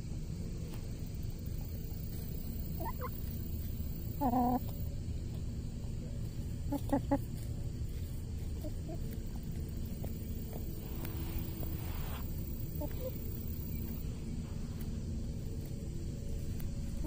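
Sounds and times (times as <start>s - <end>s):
low steady rumble: 0.0s - 17.0s
chickens clucking: 1.4s - 14.1s.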